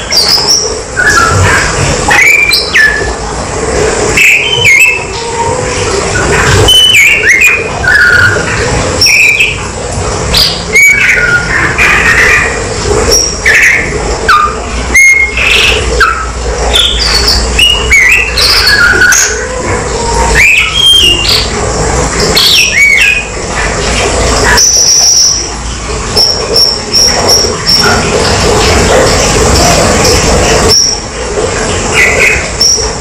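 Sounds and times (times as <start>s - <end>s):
bird whistling song: 0.0s - 3.1s, 4.2s - 5.2s, 6.6s - 9.6s, 10.3s - 12.5s, 13.1s - 19.4s, 20.4s - 21.5s, 22.4s - 23.3s, 24.5s - 25.5s.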